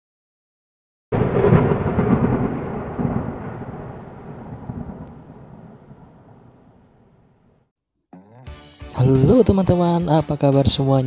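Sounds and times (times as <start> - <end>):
thunder crack and rumble: 1.2 - 7.6.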